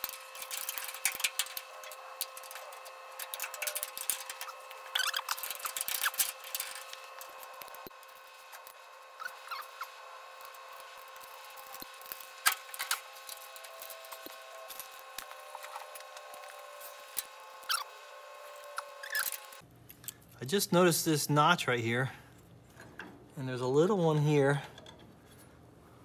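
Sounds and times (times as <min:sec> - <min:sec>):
metal parts clicking and clinking: 0:00.0 - 0:07.8.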